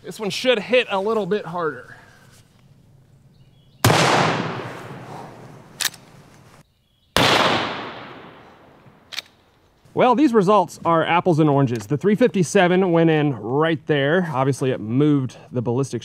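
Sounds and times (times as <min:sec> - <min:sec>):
rifle shots echoing: 0:03.8 - 0:06.0, 0:07.2 - 0:09.1.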